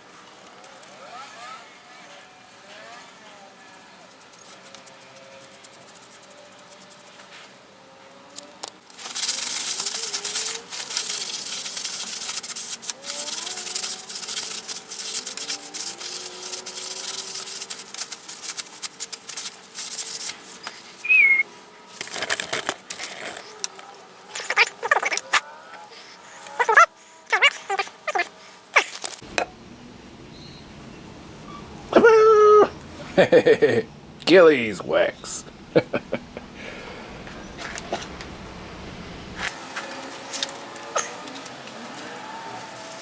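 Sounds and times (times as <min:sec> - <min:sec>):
hand rubbing rough wood: 0:08.9 - 0:21.4, 0:24.3 - 0:25.4, 0:26.5 - 0:29.0.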